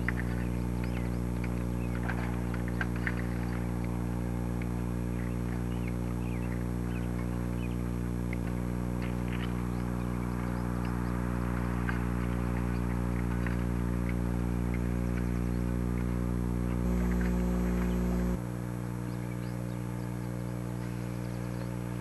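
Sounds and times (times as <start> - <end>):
steady low hum: 0.0 - 22.0
faint chirps: 16.6 - 18.4.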